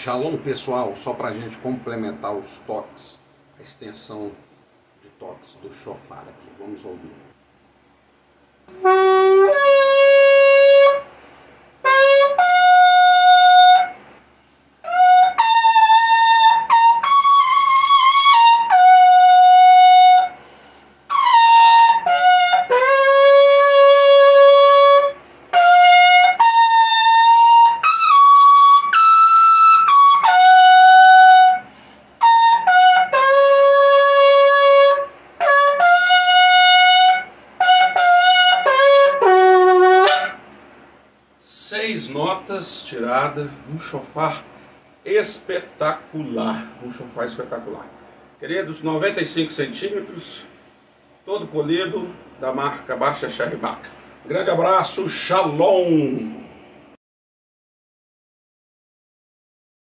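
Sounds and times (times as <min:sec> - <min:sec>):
shofar blasts: 0:08.7 - 0:11.2, 0:11.8 - 0:14.0, 0:14.8 - 0:20.4, 0:21.1 - 0:40.4.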